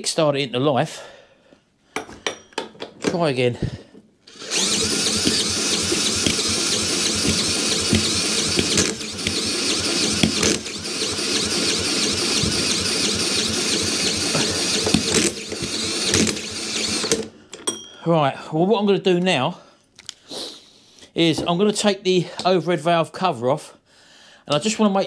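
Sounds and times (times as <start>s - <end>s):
cordless drill running: 4.3s - 17.3s
engine turning over: 4.3s - 17.3s.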